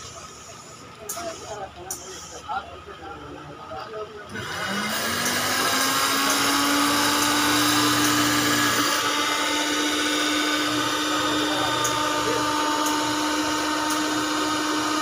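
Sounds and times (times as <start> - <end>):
cutting machine motor whine: 4.3 - 15.0.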